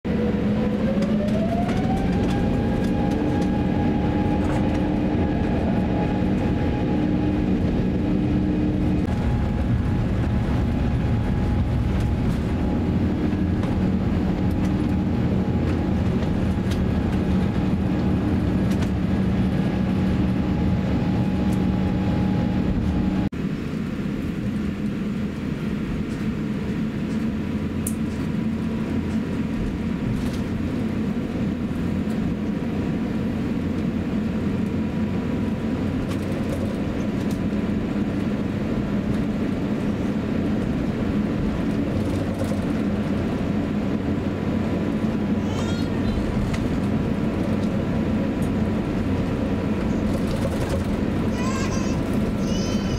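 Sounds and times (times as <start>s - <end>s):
low runway rumble: 0.0s - 52.9s
jet engine drone: 0.1s - 52.9s.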